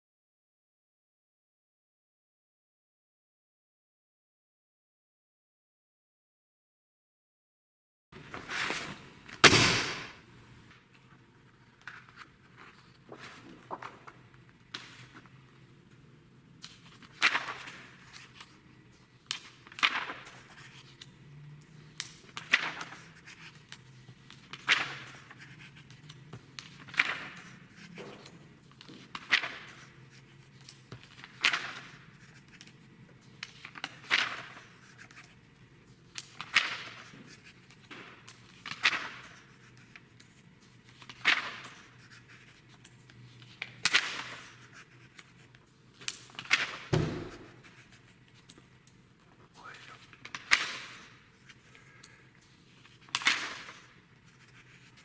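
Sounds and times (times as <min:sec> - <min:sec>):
magazine pages turning: 0:08.2 - 0:10.1, 0:11.5 - 0:15.4, 0:16.6 - 0:21.2, 0:22.0 - 0:48.7, 0:49.6 - 0:55.0.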